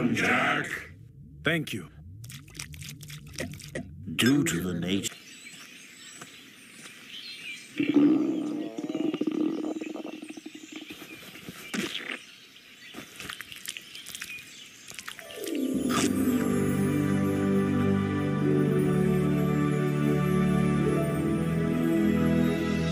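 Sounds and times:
low wavering growl: 0.0s - 5.1s
faint animal and insect calls: 2.4s - 15.2s.

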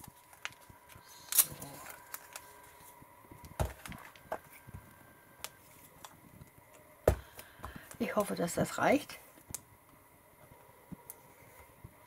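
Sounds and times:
paper and craft supplies handled: 0.0s - 6.2s.

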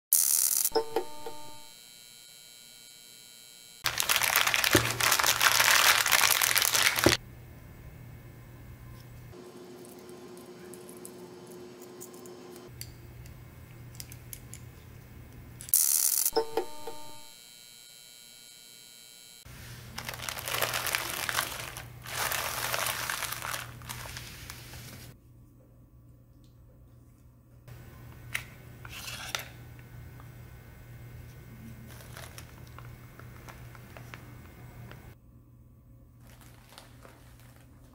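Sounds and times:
plastic bags crinkling: 3.8s - 7.2s, 19.5s - 25.1s, 31.8s - 34.2s, 36.2s - 37.9s.

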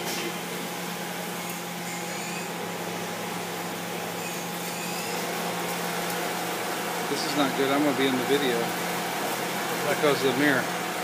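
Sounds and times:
coolant spraying against window: 0.6s - 11.0s.

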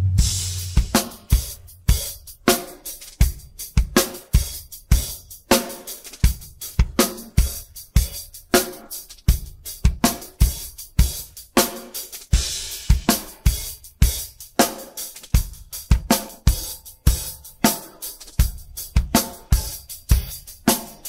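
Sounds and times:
hi-hat strokes: 0.0s - 21.0s.

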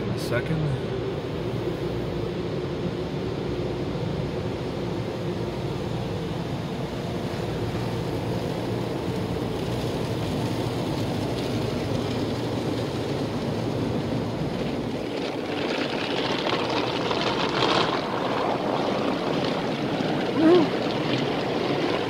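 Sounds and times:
car wash machinery rumble: 0.0s - 22.0s
water beating on car body: 7.3s - 22.0s.

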